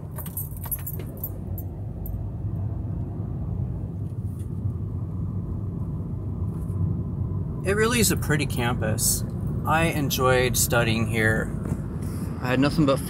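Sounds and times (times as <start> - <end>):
keys jingling: 0.0 - 2.2
road and engine rumble: 0.0 - 13.0.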